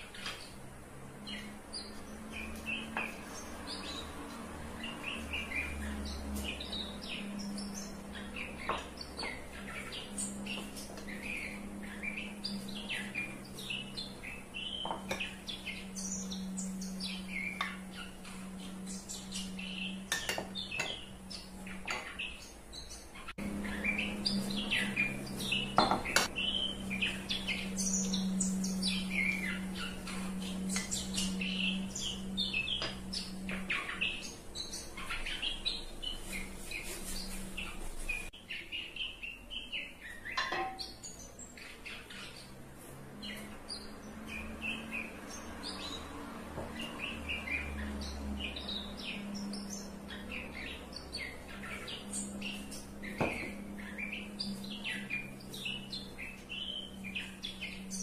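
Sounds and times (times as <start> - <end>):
steady low hum: 0.0 - 38.4
small birds chirping: 0.0 - 58.0.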